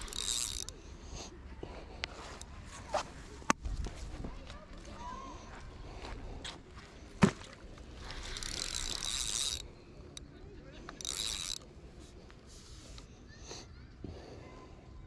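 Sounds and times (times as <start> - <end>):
fishing reel whirring and ratcheting: 0.0 - 1.2, 7.7 - 13.1.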